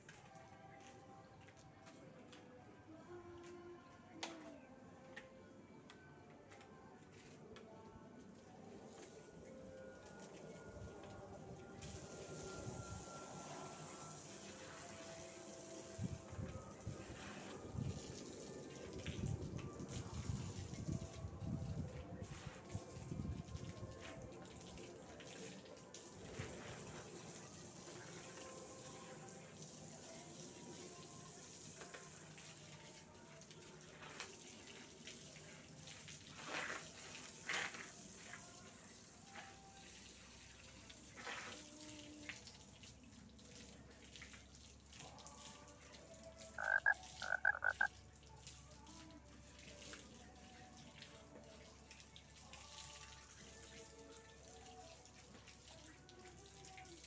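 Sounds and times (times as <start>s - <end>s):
garden hose spraying water: 8.3s - 57.0s
short pitched calls: 46.6s - 47.9s.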